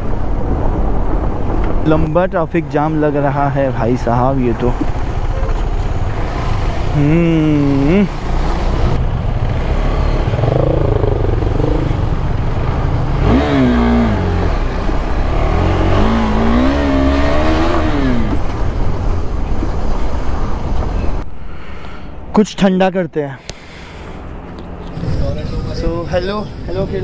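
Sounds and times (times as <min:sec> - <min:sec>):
wind and road noise: 0:00.0 - 0:27.0
motorcycle engine revving: 0:04.9 - 0:18.7.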